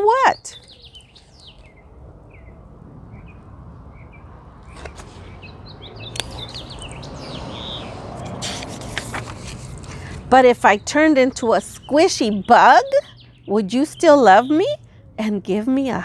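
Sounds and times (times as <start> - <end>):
small birds chirping: 0.0 - 9.0, 9.7 - 16.0
brief rustle: 4.6 - 5.3, 8.2 - 10.2.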